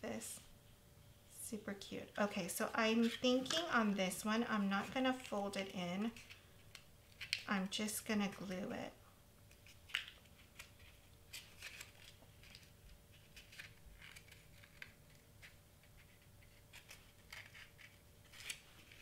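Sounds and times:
cardstock crackling and rustling: 2.5s - 4.0s, 9.5s - 19.0s.

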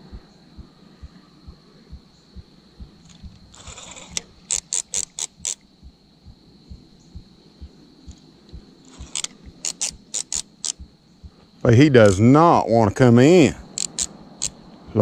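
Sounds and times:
fishing reel drag clicking: 3.5s - 5.6s, 8.9s - 10.8s, 13.8s - 14.6s.

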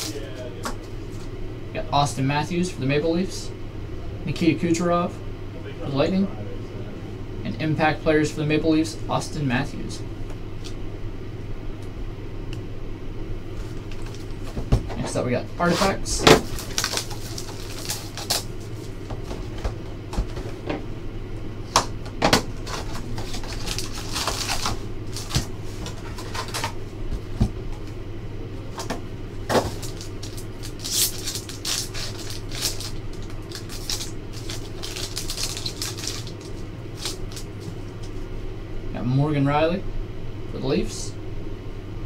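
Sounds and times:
steady low hum: 0.0s - 42.0s
plastic wrapper crinkling: 15.8s - 18.5s, 22.7s - 26.7s, 29.5s - 38.1s.

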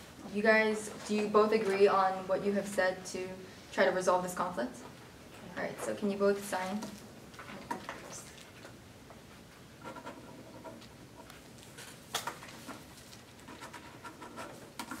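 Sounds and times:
pens scratching on paper: 9.8s - 15.0s.

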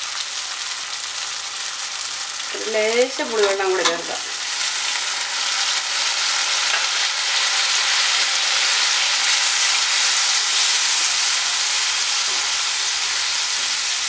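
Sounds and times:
masala sizzling in frying pan: 0.0s - 14.0s.

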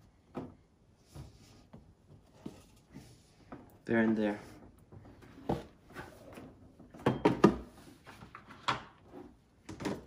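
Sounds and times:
hard objects knocking and clattering: 6.8s - 7.7s.

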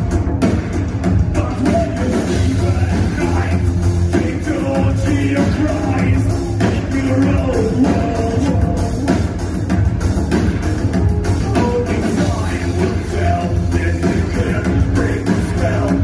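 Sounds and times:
drum kit beat: 0.0s - 16.0s
live band music: 0.0s - 16.0s
person singing: 1.3s - 9.4s, 11.4s - 16.0s.

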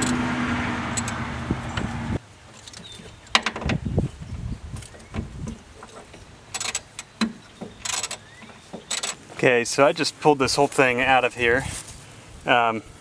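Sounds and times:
metallic clicks and knocks: 4.8s - 9.2s.

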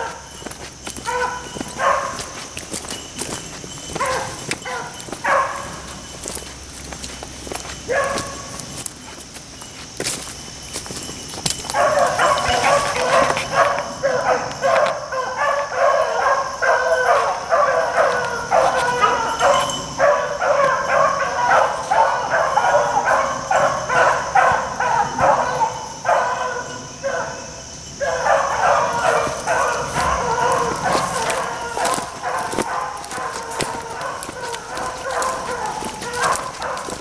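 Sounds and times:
hounds baying: 0.0s - 37.0s.

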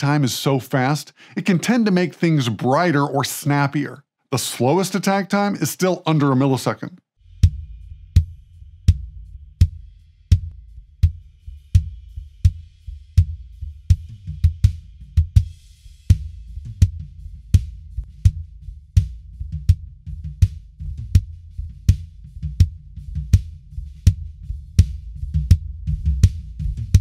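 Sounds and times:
drum kit playing a steady beat: 7.4s - 27.0s
kick drum: 13.2s - 27.0s.

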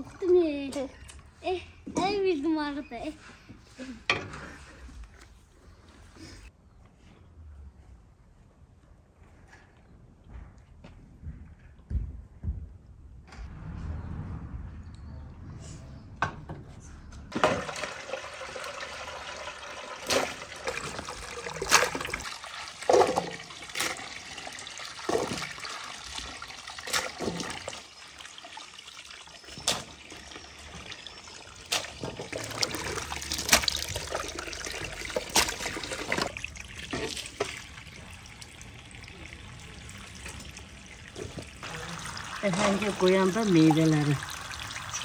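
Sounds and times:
water running from hose: 17.3s - 45.0s.

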